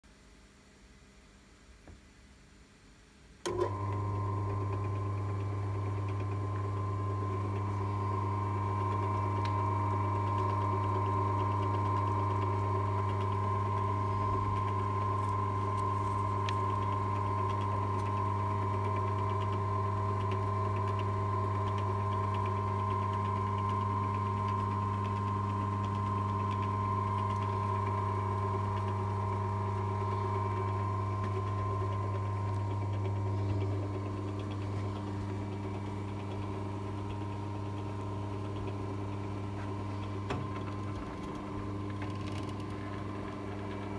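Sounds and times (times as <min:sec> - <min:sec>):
drill press switch click: 0:03.4 - 0:03.8
electric motor humming: 0:03.5 - 0:43.9.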